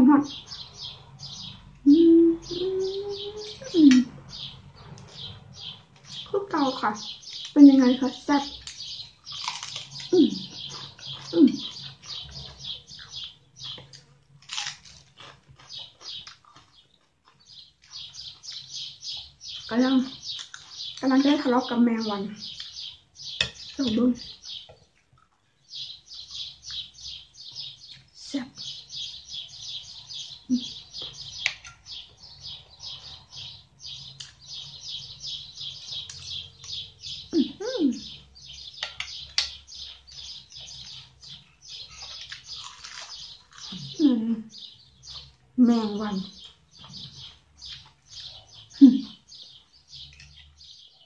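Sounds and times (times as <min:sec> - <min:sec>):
birds chirping: 0:00.0 - 0:51.0
soft eating sounds: 0:00.3 - 0:51.0
woman humming: 0:01.9 - 0:04.0.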